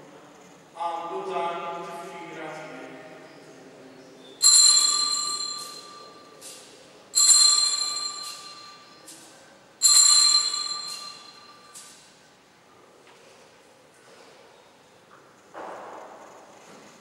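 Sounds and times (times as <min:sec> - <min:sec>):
altar bells ringing: 0:04.4 - 0:12.1.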